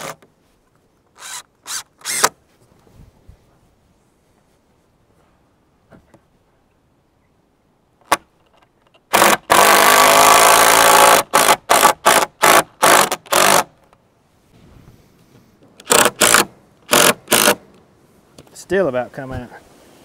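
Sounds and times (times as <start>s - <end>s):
power drill driving screw into wood: 0.0s - 0.2s, 1.2s - 2.4s, 9.1s - 13.7s, 15.8s - 17.6s.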